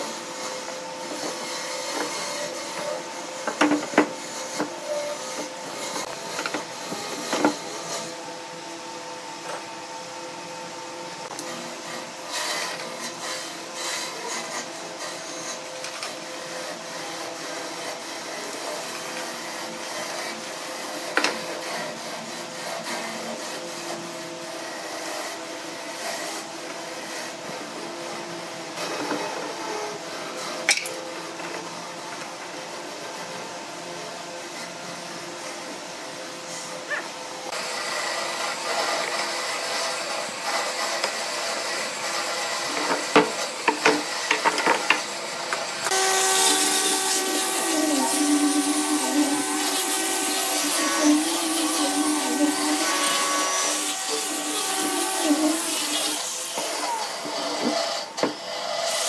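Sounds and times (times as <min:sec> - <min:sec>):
sandpaper rasping on wood: 0:45.8 - 0:57.8.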